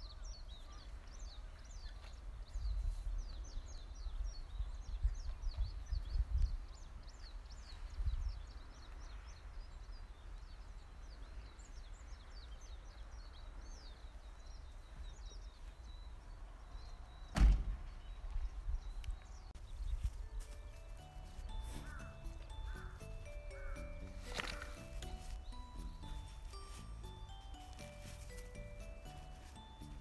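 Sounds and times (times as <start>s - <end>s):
small birds chirping: 0.0s - 30.0s
wind rumble on microphone: 0.9s - 13.5s, 14.6s - 20.4s.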